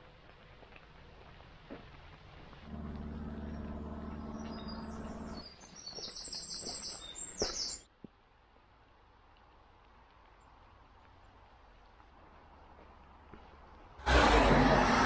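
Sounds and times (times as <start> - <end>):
steady low hum: 2.7 - 5.4
bird chirping: 3.4 - 7.9.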